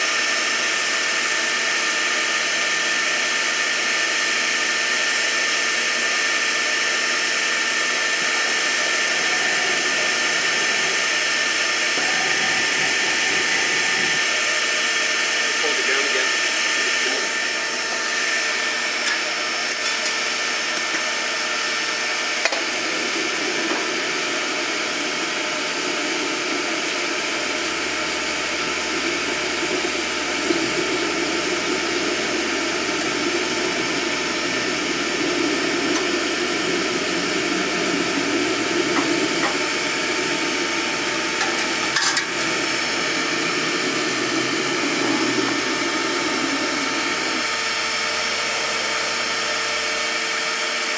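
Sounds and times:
shop vacuum running: 0.0s - 50.9s.

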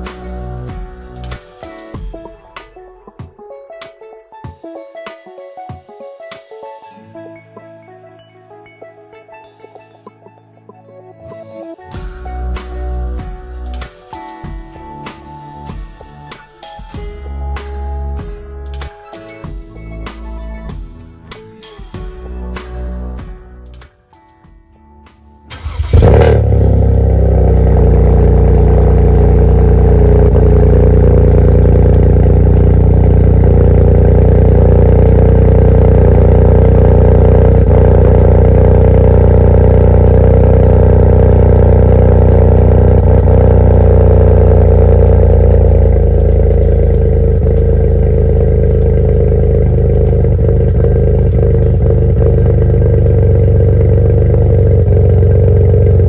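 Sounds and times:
car engine idling: 25.5s - 56.0s.

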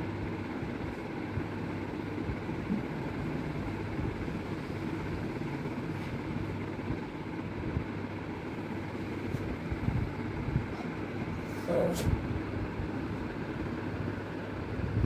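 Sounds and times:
low hum and rumble: 0.0s - 15.0s.

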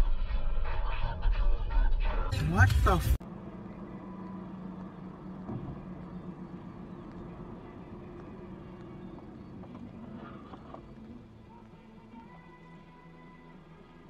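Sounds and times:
car engine and road hum: 1.5s - 14.0s.

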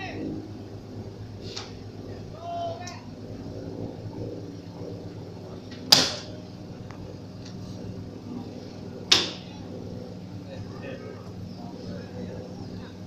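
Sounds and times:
boat engine hum: 0.0s - 13.0s
sharp bang: 5.9s - 6.3s.

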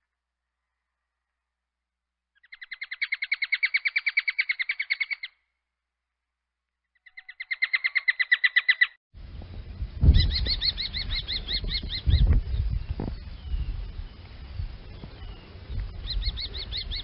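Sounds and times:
kestrel calling: 2.4s - 5.4s, 7.0s - 9.0s, 10.0s - 14.3s, 14.9s - 17.0s
low background rumble: 9.2s - 17.0s.

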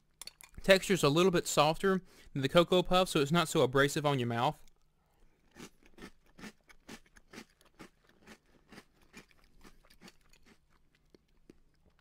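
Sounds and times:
person chewing crunchy cereal: 4.7s - 12.0s.

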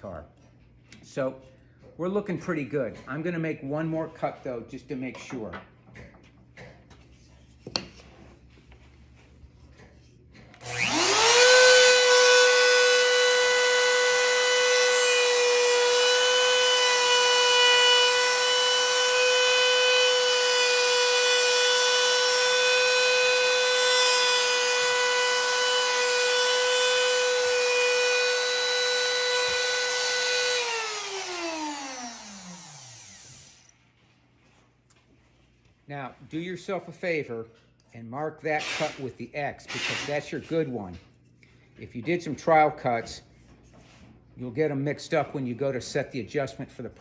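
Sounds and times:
router motor whining: 10.6s - 33.8s.

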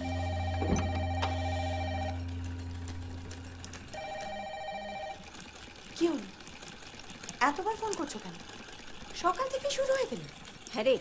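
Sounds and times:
phone ringing with two-tone ring: 0.0s - 2.6s, 3.7s - 5.6s
low hum: 0.0s - 5.3s.

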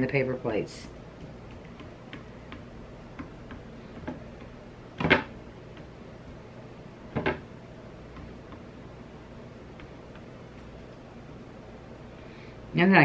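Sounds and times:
sponge dauber tapping: 1.2s - 6.5s, 8.1s - 8.8s, 9.6s - 10.8s
louder knocks on wood: 5.0s - 5.3s, 7.1s - 7.4s.

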